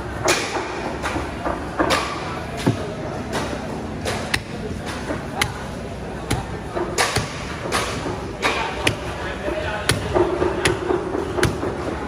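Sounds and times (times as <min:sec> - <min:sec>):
machete chopping on wooden block: 0:01.9 - 0:09.2, 0:09.8 - 0:11.8.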